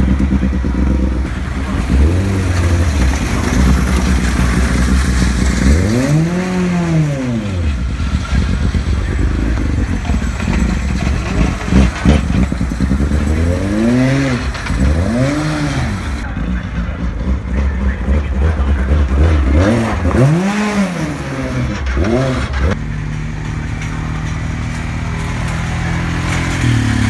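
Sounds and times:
engine revving: 0.0s - 27.0s
racing car engines idling: 0.0s - 27.0s.

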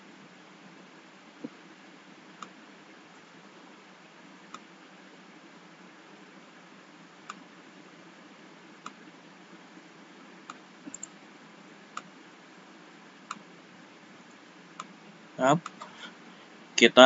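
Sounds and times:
faint steady hiss: 0.0s - 17.0s
computer mouse clicking: 4.5s - 4.7s, 7.2s - 7.4s, 10.5s - 11.2s, 11.9s - 12.1s.

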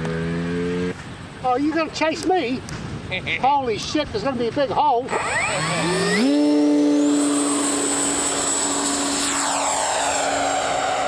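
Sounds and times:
model plane motor whining: 5.0s - 11.0s
rushing noise: 5.4s - 11.0s.

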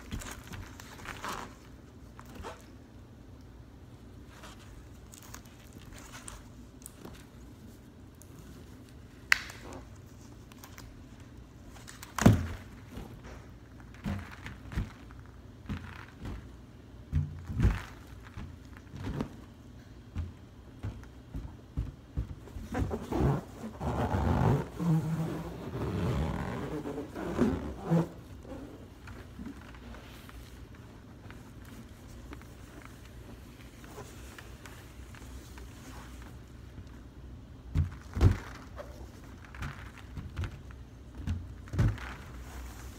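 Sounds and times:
rubbing on balloon surface: 22.3s - 36.4s.

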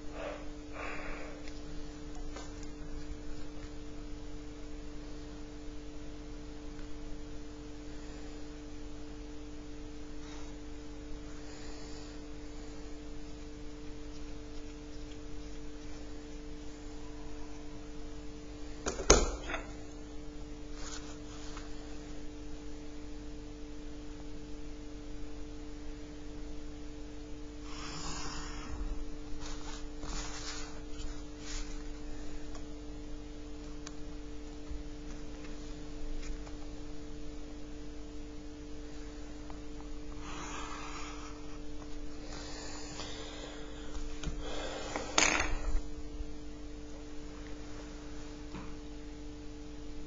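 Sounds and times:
electrical hum: 0.0s - 50.0s
ruler rustling on paper: 29.4s - 32.0s.

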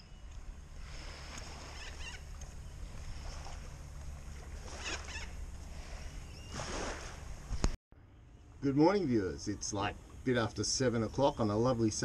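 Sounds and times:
faint bird calls: 0.0s - 3.7s, 4.6s - 6.7s.

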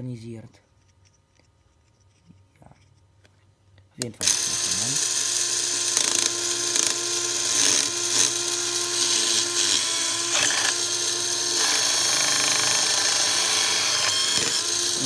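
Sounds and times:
small electric motor whine: 4.2s - 15.0s.

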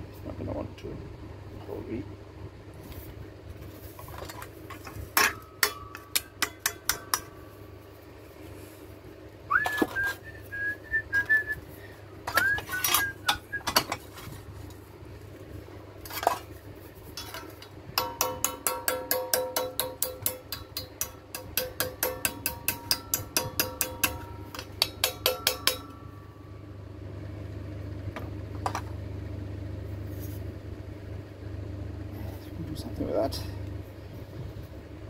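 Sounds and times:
hammer striking steel: 5.2s - 7.5s, 17.2s - 26.5s
person whistling: 9.5s - 11.6s, 12.3s - 13.6s.

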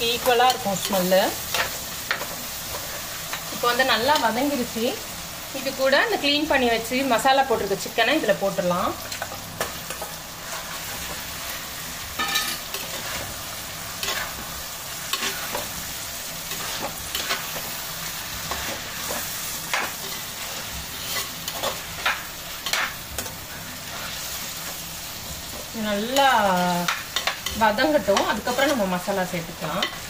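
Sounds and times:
chicken sizzling in oil: 0.0s - 30.0s
spatula scraping and knocking pan: 14.0s - 15.8s.

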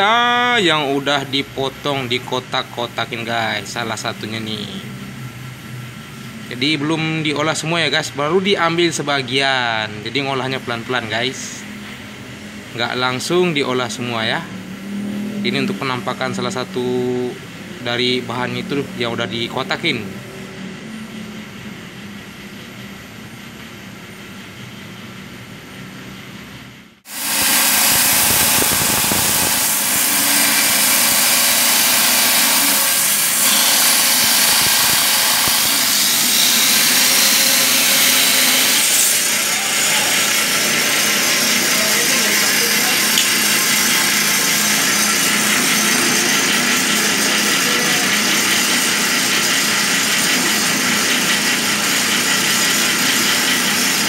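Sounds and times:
wet stone saw grinding: 27.1s - 54.0s.

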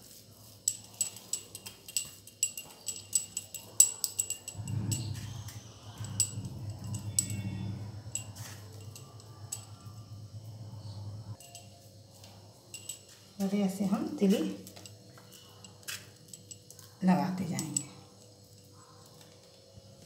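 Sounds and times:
bangles clinking: 0.0s - 20.0s
low steady hum: 1.9s - 15.6s.

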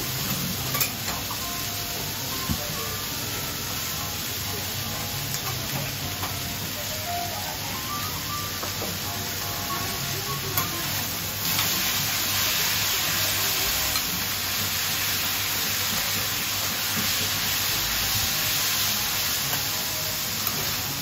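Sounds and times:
metal spatulas on a griddle: 0.0s - 1.7s, 4.2s - 6.6s, 8.6s - 21.0s
noodles sizzling on a griddle: 0.0s - 21.0s.

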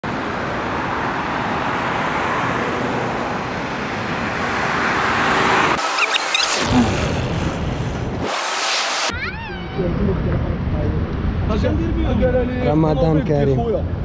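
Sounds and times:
road traffic: 0.0s - 14.0s
faint high squeaks: 5.8s - 6.6s.

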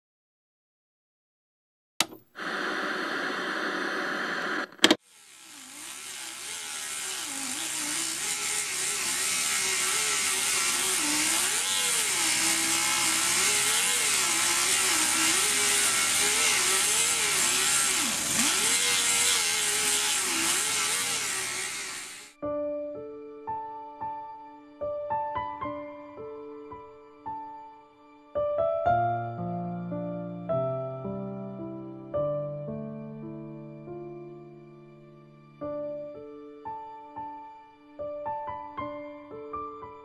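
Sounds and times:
sharp click: 2.0s - 2.3s, 4.6s - 5.0s
pneumatic die grinder grinding metal: 4.7s - 22.4s.

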